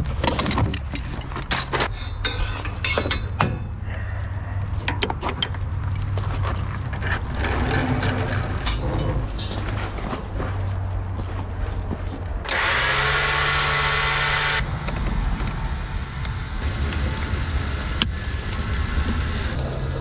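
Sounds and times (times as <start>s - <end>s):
low rumble: 13.8s - 20.0s.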